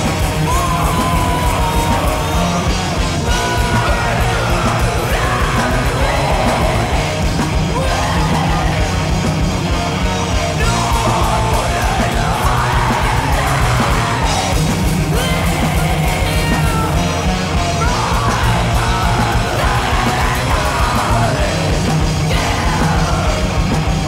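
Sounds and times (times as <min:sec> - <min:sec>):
distorted guitars: 0:00.0 - 0:24.0
drums: 0:00.0 - 0:24.0
person yelling vocals: 0:15.1 - 0:21.4.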